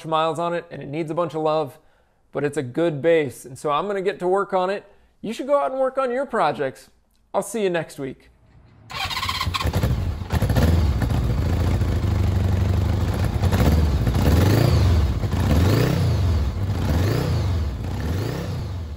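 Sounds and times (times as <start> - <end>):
motorcycle engine revving: 8.5 - 18.9.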